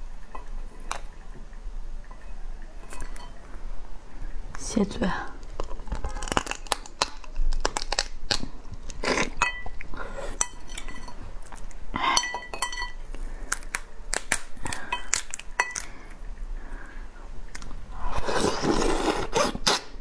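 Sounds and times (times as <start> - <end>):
crab shell cracking and crunching: 5.4 - 10.0, 13.1 - 16.2.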